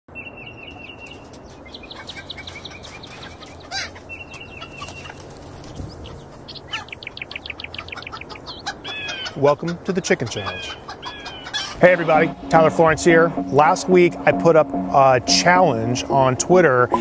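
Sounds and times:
small birds chirping: 0.2 - 14.1
chickens clucking: 1.9 - 12.3.

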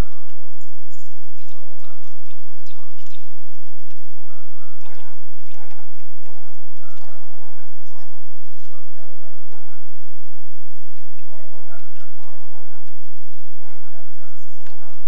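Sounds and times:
faint sharp clicks: 0.0 - 4.0, 4.8 - 7.2, 13.6 - 15.0.

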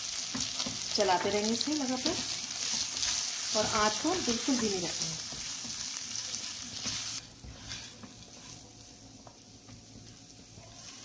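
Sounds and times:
food sizzling in oil: 0.0 - 11.0
spatula scraping pan: 2.0 - 8.9.

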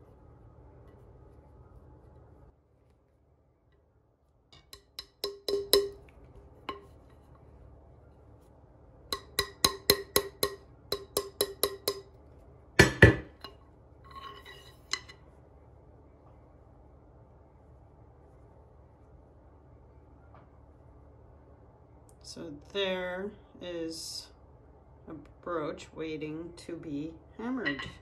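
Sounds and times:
small hammer tapping wire: 4.5 - 7.2, 9.1 - 12.2
loud knock: 12.8 - 13.3.

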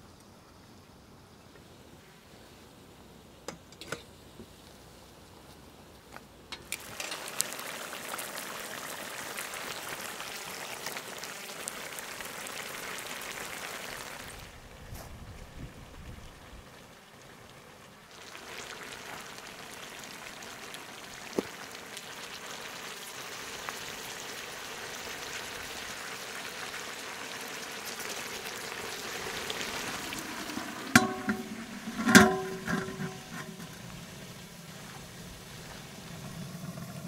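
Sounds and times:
water hissing in hot pan: 6.6 - 14.6, 16.2 - 37.0
bowl clanging on pan: 30.9 - 33.8.

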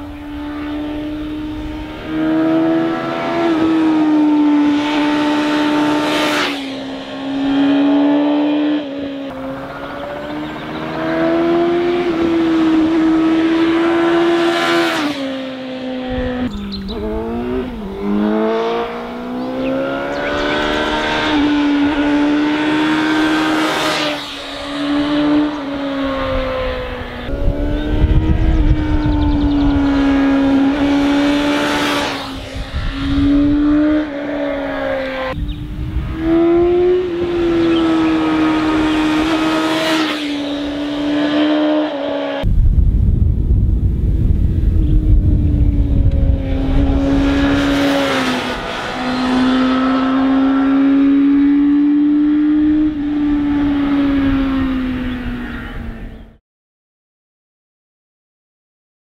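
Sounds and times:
motorcycle engine running hard: 27.0 - 31.4, 44.4 - 48.2.

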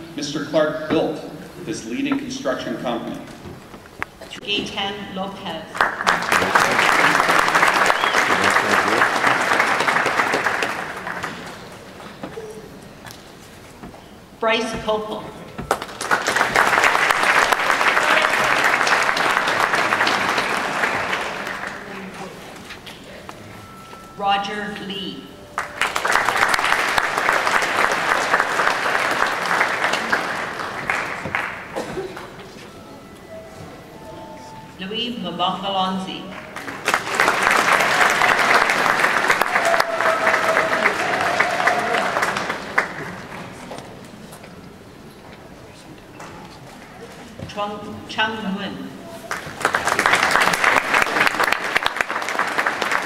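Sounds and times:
audience applauding: 5.7 - 12.2, 15.7 - 22.6, 25.6 - 32.5, 36.4 - 43.8, 49.2 - 53.0.

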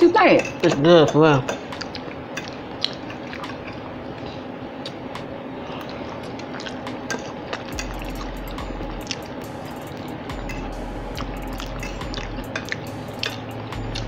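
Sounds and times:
chewing: 1.5 - 14.0
forks clicking and scraping plates: 11.3 - 14.0.

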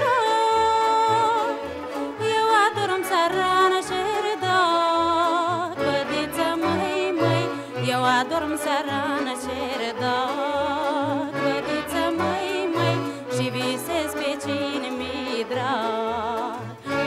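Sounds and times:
folk band playing: 0.0 - 17.0
woman singing: 0.0 - 17.0.

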